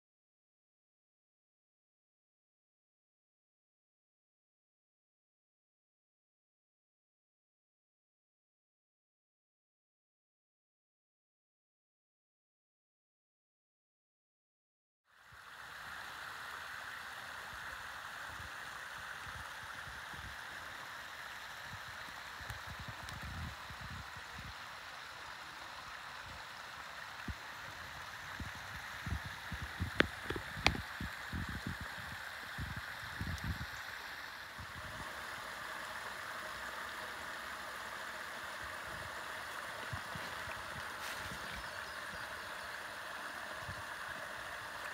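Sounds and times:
creek splashing over rocks: 15.2s - 44.9s.

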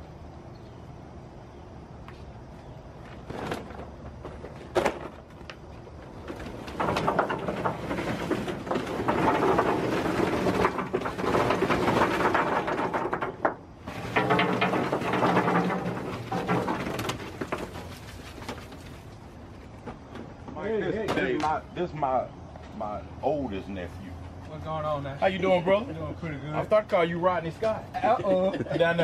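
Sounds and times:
charcoal clattering on metal: 6.2s - 19.1s.

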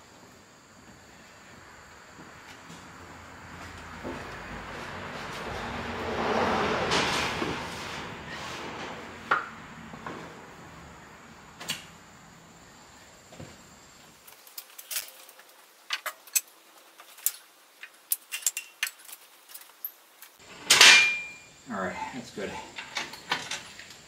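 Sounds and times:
loud metal clang: 20.6s - 21.5s.

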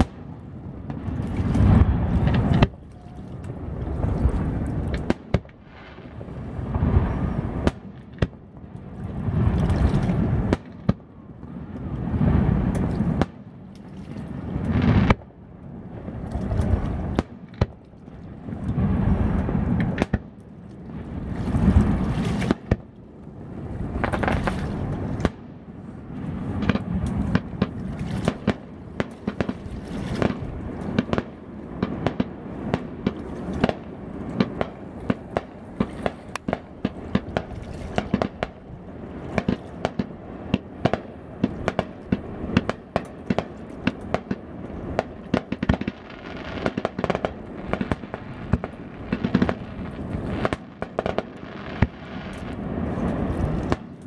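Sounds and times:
constant rumble: 0.0s - 54.0s
firework bursts and cracks: 45.0s - 54.0s.

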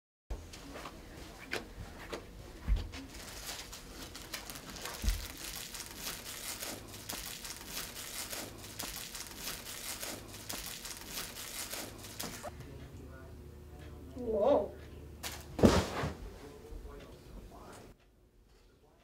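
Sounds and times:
plastic wrapper crinkling: 3.1s - 12.5s.

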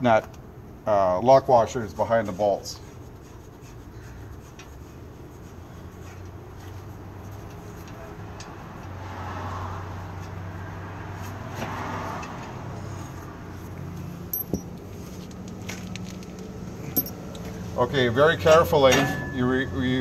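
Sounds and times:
metal nuts and washers clicking: 14.3s - 17.5s.

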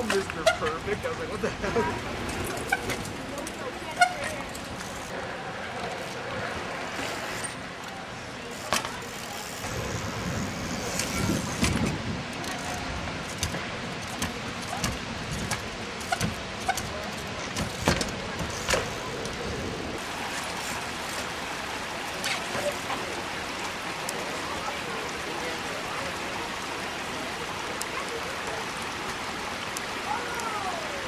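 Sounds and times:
bicycle knocking on wooden rails: 10.6s - 19.5s.

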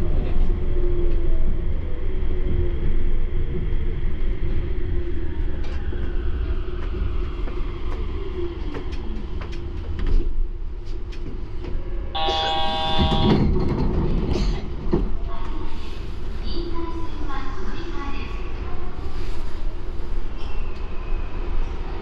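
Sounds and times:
train running with low rumble: 0.0s - 22.0s
bright multi-tone ringing: 12.2s - 13.4s.

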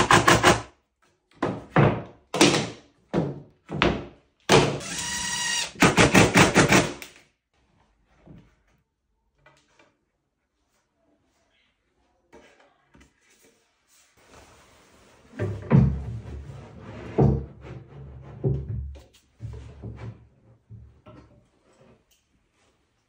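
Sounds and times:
impact driver driving screws: 4.7s - 7.1s.

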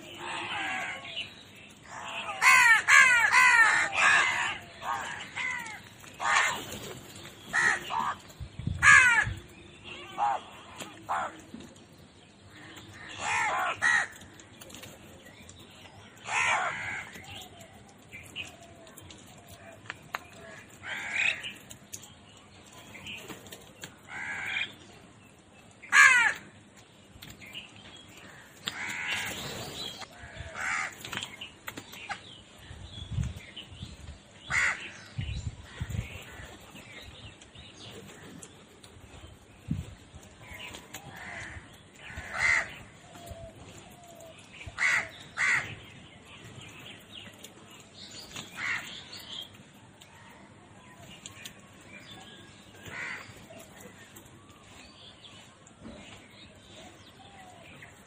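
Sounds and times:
birds cawing: 0.0s - 11.4s, 12.5s - 14.8s, 16.1s - 21.8s, 23.9s - 24.9s, 25.7s - 26.6s, 28.2s - 32.2s, 34.4s - 36.9s, 40.5s - 46.0s, 48.2s - 49.5s, 52.5s - 55.4s.

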